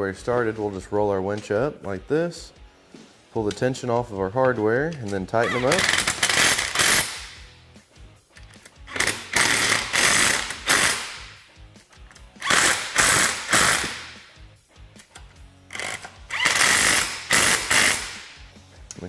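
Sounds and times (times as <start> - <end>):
impact wrench hammering: 5.7 - 7.4, 8.9 - 11.4, 12.4 - 14.2, 15.7 - 18.4.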